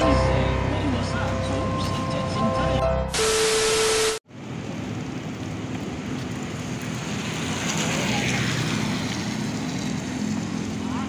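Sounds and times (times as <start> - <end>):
loud steady hiss: 3.1 - 4.2
traffic on wet street: 3.2 - 11.0.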